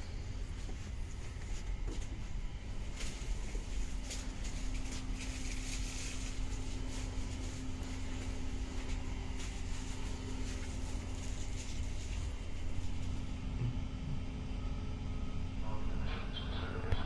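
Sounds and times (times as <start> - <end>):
train equipment hum: 0.0 - 17.0
low rumble: 10.6 - 16.6.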